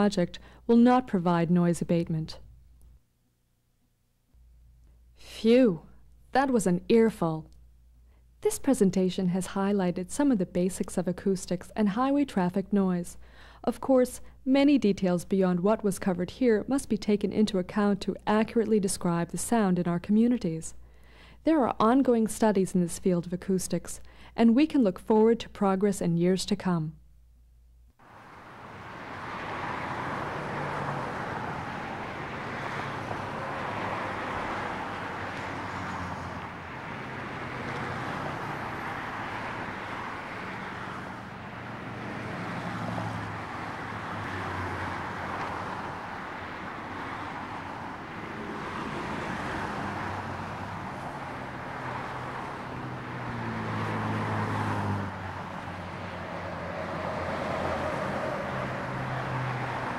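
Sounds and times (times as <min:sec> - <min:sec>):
road traffic passing: 0:00.0 - 0:02.3, 0:28.0 - 0:59.9.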